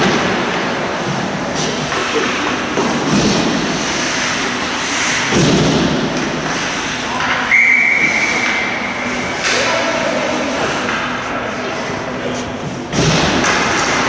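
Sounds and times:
knocks on ice rink: 0:05.0 - 0:06.7, 0:12.9 - 0:14.0.

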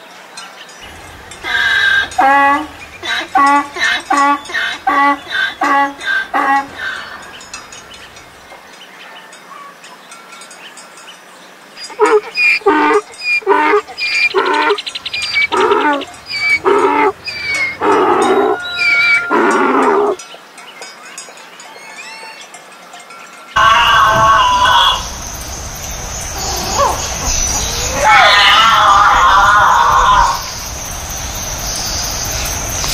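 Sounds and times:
donkey braying: 0:00.8 - 0:08.5, 0:11.8 - 0:20.2, 0:23.6 - 0:30.6.

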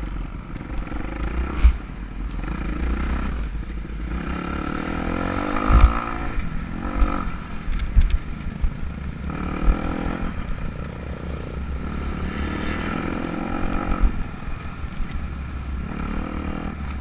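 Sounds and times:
low wind rumble: 0:00.0 - 0:17.0
dirt bike engine revving: 0:04.1 - 0:07.4, 0:09.3 - 0:10.4, 0:11.7 - 0:14.2.

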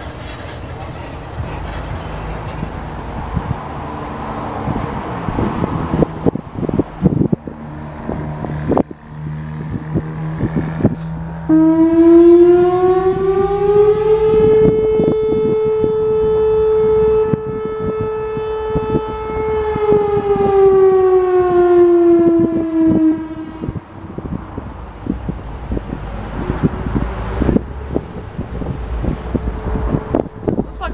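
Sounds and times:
warning siren winding up and down: 0:08.0 - 0:24.1.

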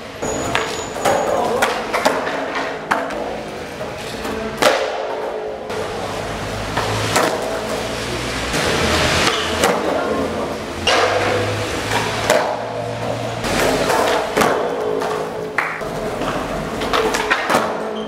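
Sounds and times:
skateboard wheels rolling on concrete: 0:00.0 - 0:18.0
skateboard clacking: 0:00.2 - 0:18.0.

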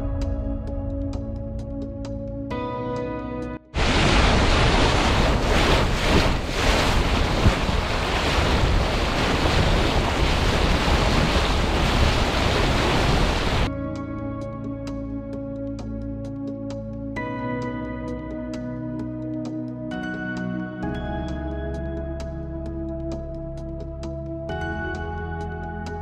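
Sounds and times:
water rushing along hull: 0:03.8 - 0:13.7
wind buffeting microphone: 0:03.8 - 0:13.7.

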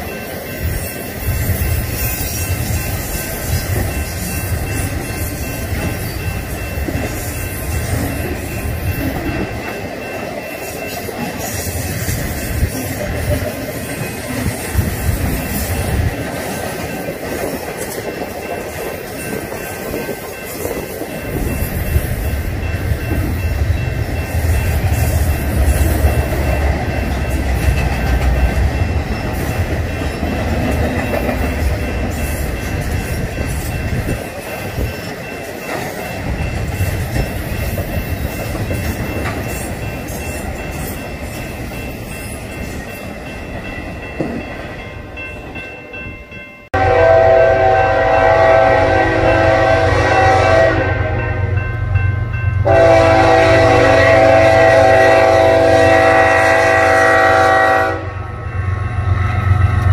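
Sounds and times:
train wheels rumbling on rail: 0:00.0 - 0:59.9
locomotive air horn: 0:46.8 - 0:51.5, 0:52.6 - 0:58.4.

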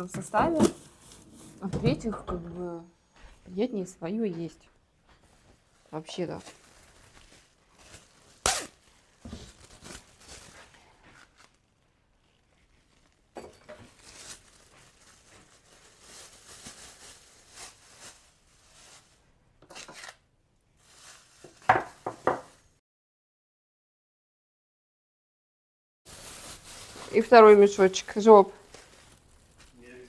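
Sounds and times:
plastic bags rustling: 0:00.0 - 0:02.0, 0:05.2 - 0:22.7, 0:26.1 - 0:30.0.

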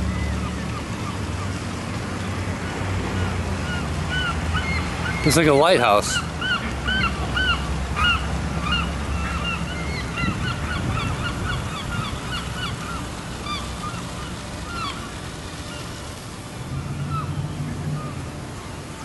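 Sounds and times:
flock of birds calling: 0:03.2 - 0:15.9, 0:16.8 - 0:18.4
low steady rumble: 0:06.2 - 0:19.0.

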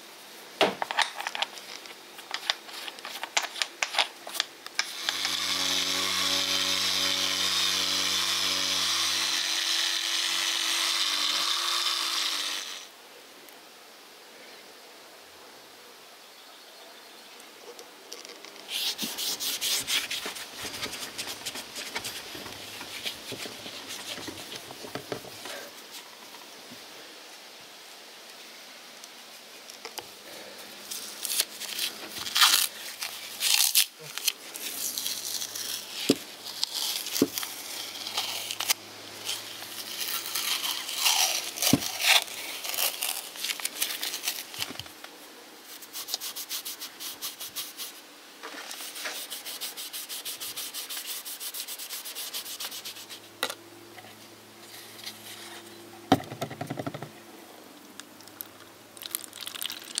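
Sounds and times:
rag rubbing on wood: 0:18.7 - 0:25.6, 0:48.7 - 0:53.3.

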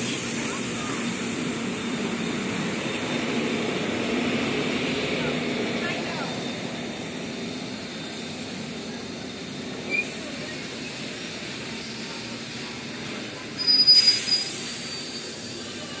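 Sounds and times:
train wheels rumbling: 0:00.0 - 0:16.0
high-pitched wheel squeal: 0:13.4 - 0:16.0.

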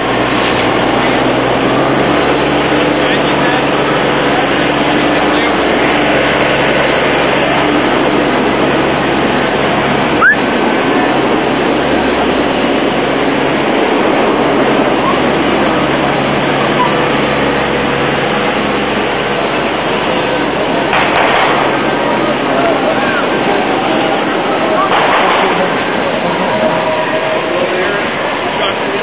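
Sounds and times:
motor running steadily: 0:00.0 - 0:29.0
brief rising chirp: 0:10.2 - 0:10.4.

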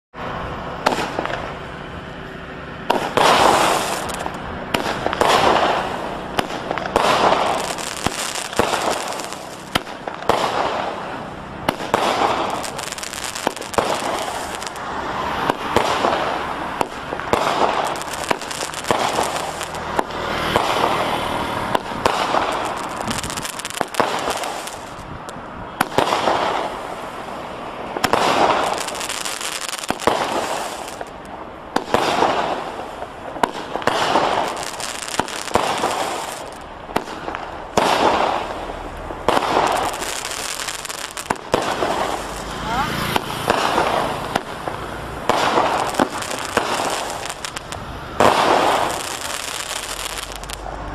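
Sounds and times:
fireworks crackling: 0:00.2 - 0:50.9
fireworks shots popping: 0:00.8 - 0:01.7, 0:02.8 - 0:27.3, 0:27.9 - 0:50.8.

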